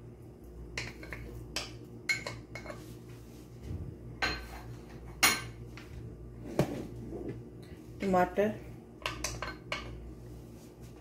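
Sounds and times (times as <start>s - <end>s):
glass bowls clinking: 4.2s - 5.6s.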